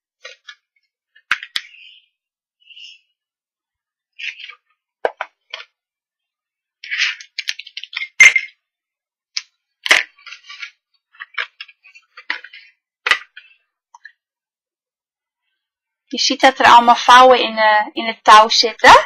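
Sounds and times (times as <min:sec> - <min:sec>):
paper rustling: 0:06.8 - 0:08.5, 0:09.8 - 0:13.6.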